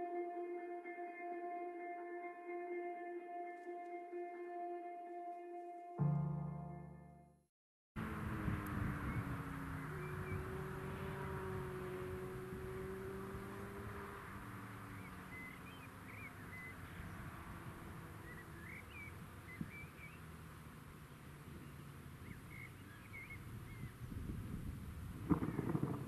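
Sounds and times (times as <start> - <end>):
wind noise on microphone: 8.0 - 15.5, 23.1 - 26.0
faint steady drone: 8.0 - 23.9
birds chirping: 8.0 - 24.4, 25.2 - 26.0.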